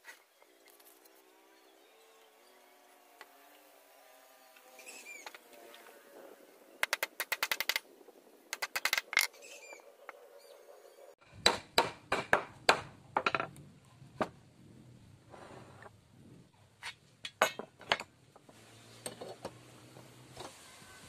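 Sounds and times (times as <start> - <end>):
wooden parts clicking and tapping: 6.8 - 7.9, 8.5 - 9.4, 12.1 - 13.6.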